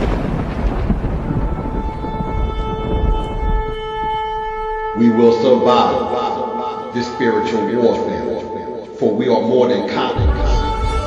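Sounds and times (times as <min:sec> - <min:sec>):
deep rumble: 0:00.0 - 0:05.0
shofar long note: 0:01.5 - 0:08.9, 0:10.2 - 0:11.0
song with singing voice: 0:10.1 - 0:11.0.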